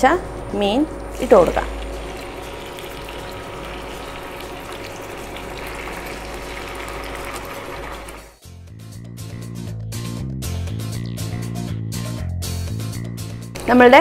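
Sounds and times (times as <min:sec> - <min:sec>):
fish sizzling in hot oil: 0:01.1 - 0:08.4
background music: 0:06.5 - 0:14.0.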